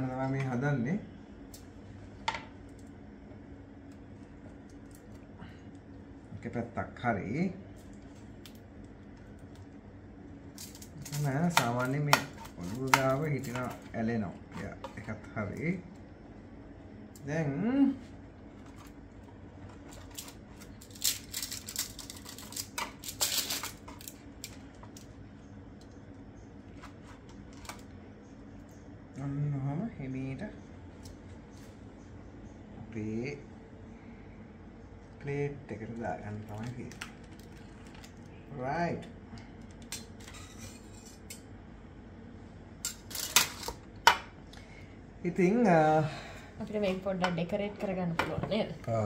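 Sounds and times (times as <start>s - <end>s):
faint low hum: 0.0s - 49.0s
utensils scraping on baking tray: 40.2s - 41.4s.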